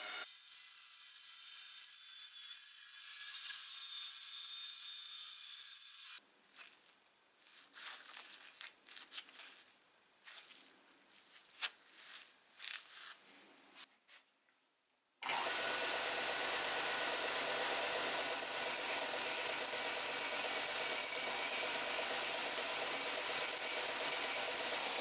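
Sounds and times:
bandsaw cutting wood: 0.0 - 0.3, 15.2 - 25.0
hands handling wood: 6.4 - 14.6.

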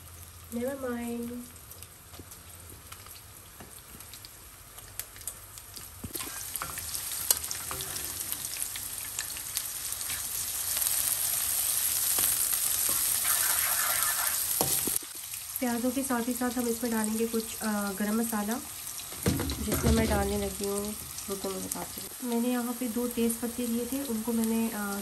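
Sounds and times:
onions sizzling in oil: 0.0 - 25.0.

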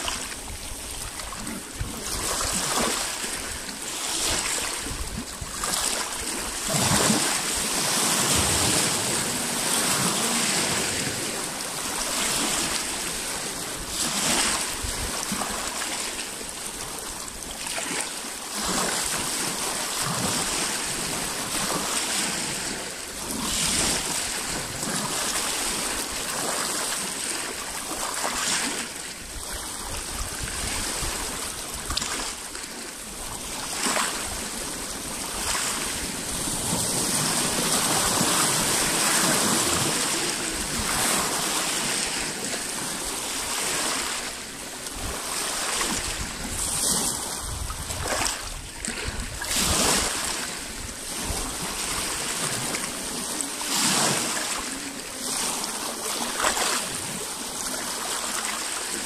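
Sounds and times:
waves lapping on rocky shore: 0.0 - 59.0.

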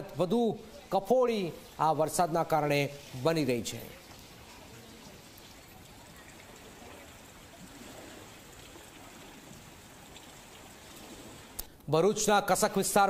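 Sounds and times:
faint rush of floodwater: 0.0 - 11.8.

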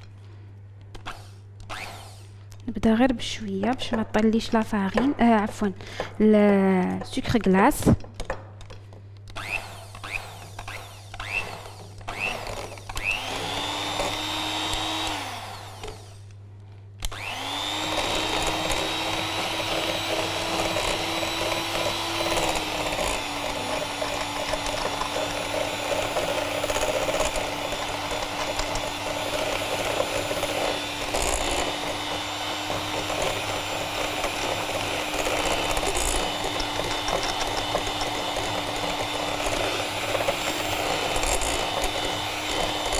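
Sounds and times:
electric mixer motor whine: 9.4 - 16.3, 17.0 - 42.9.

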